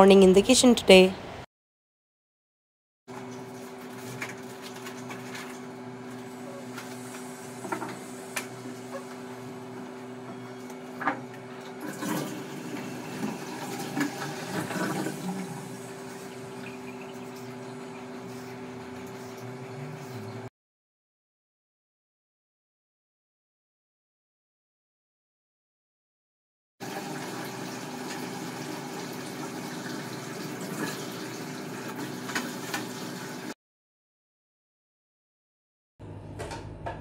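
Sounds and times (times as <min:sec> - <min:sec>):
construction drill motor hum: 0:12.7 - 0:20.5.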